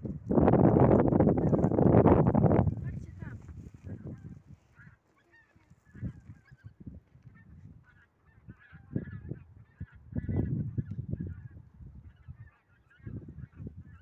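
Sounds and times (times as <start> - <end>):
wind rumbling on microphone: 0.0 - 14.0
geese honking: 4.7 - 10.5.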